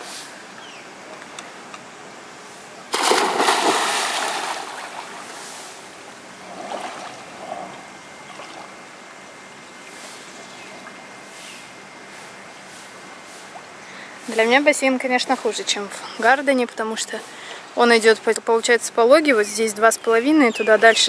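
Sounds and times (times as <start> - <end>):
person splashing into pool: 2.9 - 5.3
water sloshing: 2.9 - 8.8.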